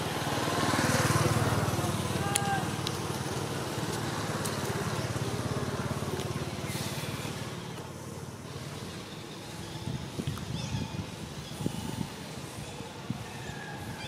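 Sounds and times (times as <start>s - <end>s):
engine running with low pulse: 0.0s - 9.3s.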